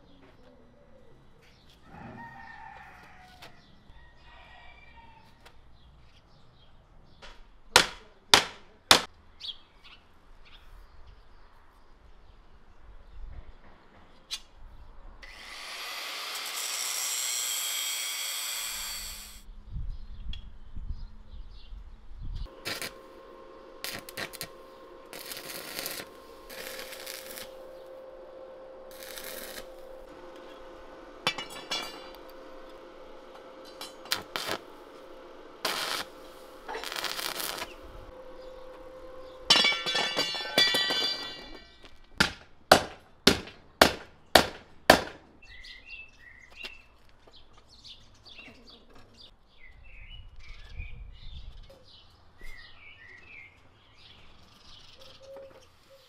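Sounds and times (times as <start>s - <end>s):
birds chirping: 9.2s - 13.3s, 37.6s - 41.1s, 45.4s - 56.0s
welder electrical hum: 15.2s - 19.4s, 22.4s - 42.2s
welding arc crackle: 22.5s - 23.2s, 23.8s - 27.9s, 28.9s - 38.0s.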